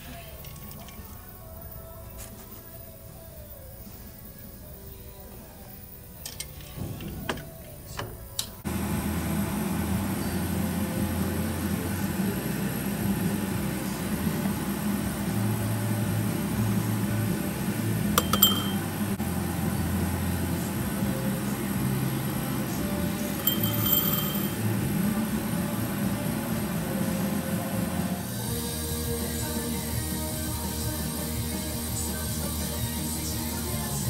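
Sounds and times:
metal pellets clinking into glass: 23.4s - 24.6s.

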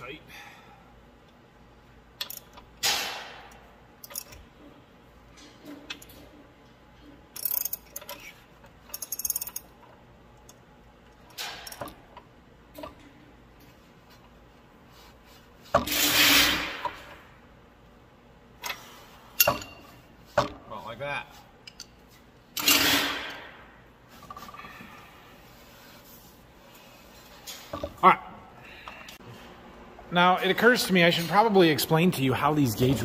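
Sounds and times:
metal clicks and clinks: 2.2s - 2.6s, 4.0s - 4.4s, 7.3s - 9.8s
ratchet clicking: 7.4s - 8.3s, 8.9s - 9.7s.

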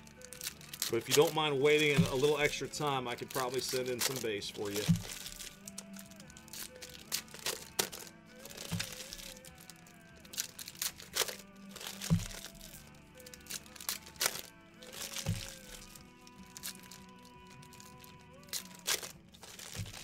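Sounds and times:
card wrappers crinkling and tearing: 0.0s - 20.0s
cards clicking: 0.0s - 20.0s
soft background music: 0.0s - 20.0s
dull thud: 11.8s - 12.7s.

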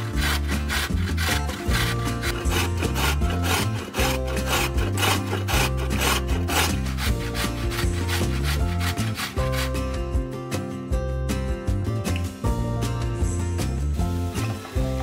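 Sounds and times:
rasping grating strokes on wood: 0.0s - 10.1s
background music: 0.0s - 15.0s.

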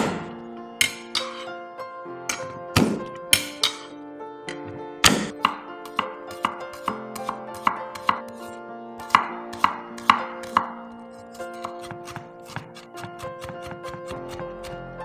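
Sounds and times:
knife chopping on wooden board: 5.0s - 8.4s, 9.0s - 10.7s, 11.6s - 14.8s.

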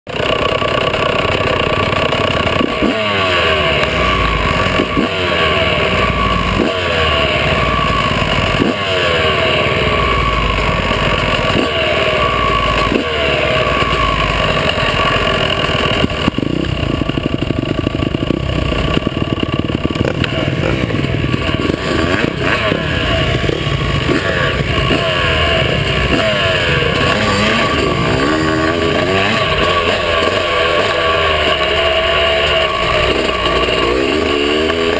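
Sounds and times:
two-stroke motorbike engine revving: 0.1s - 34.9s.

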